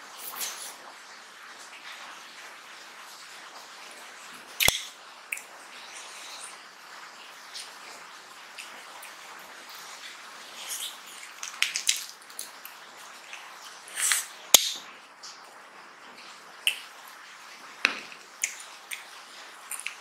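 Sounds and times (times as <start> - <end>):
wet chewing and lip smacks: 10.6 - 14.3, 18.4 - 20.0.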